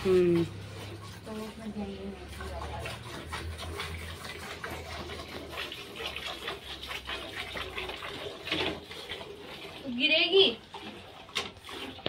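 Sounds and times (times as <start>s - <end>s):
milk squirting into metal bucket: 0.0s - 12.0s.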